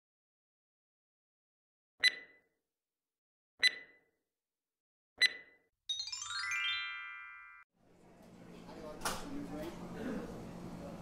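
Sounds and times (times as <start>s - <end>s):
falling ringing chime notes: 5.9s - 7.7s.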